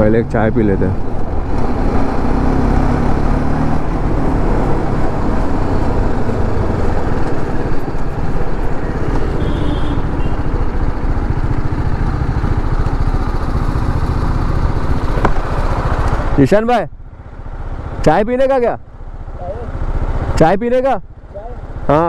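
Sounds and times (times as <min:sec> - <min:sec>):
motorcycle engine running: 0:00.0 - 0:16.4.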